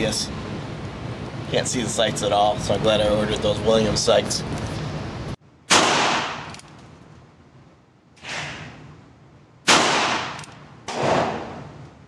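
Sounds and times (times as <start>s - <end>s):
revolver gunshots with echo: 5.7s - 6.5s, 9.6s - 11.8s.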